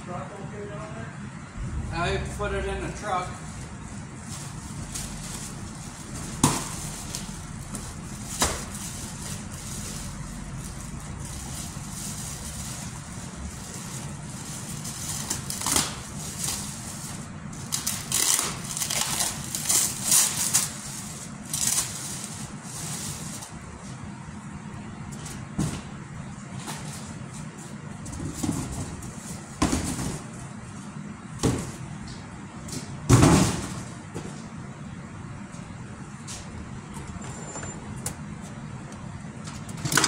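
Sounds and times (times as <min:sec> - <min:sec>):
steady low hum: 0:00.0 - 0:39.9
plastic wrapping crinkling: 0:04.2 - 0:23.5.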